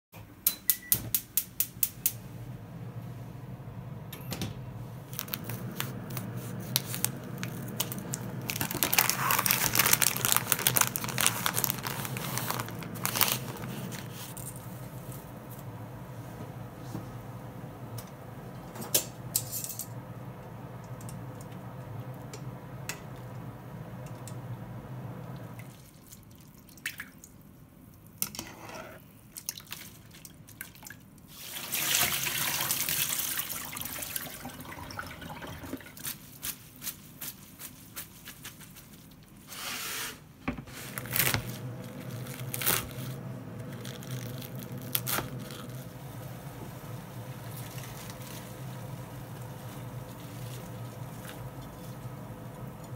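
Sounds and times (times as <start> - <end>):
pot of water boiling: 5.0 - 28.6, 29.4 - 36.1, 40.7 - 52.9
water drips: 25.4 - 28.1
water pouring into colander: 29.5 - 36.1.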